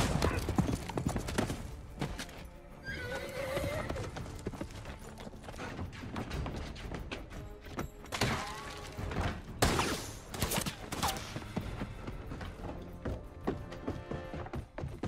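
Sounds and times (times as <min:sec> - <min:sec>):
film score music: 0:00.0 - 0:15.0
gunshots: 0:09.6 - 0:11.4.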